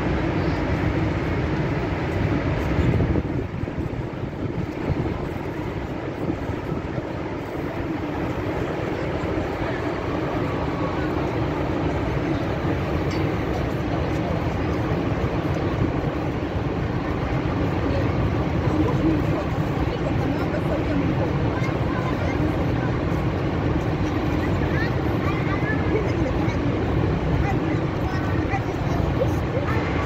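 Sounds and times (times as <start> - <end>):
waterfall rushing: 0.0 - 30.0.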